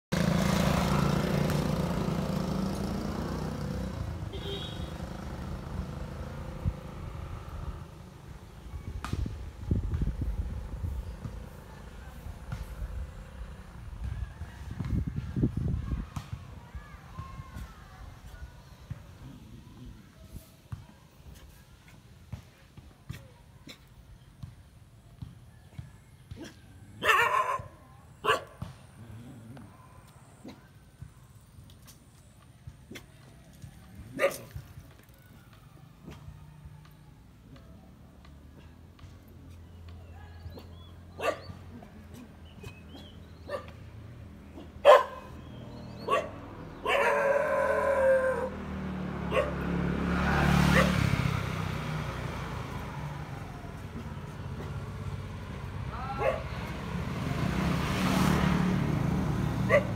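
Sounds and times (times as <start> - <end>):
motor scooter passing: 0.1 - 21.6, 25.2 - 59.9
dog barking: 26.4 - 28.6, 34.2 - 34.5, 41.1 - 42.3, 43.5 - 43.8, 44.5 - 45.4, 46.0 - 48.6, 49.3 - 49.7, 50.7 - 51.0, 56.2 - 56.6, 59.7 - 59.9.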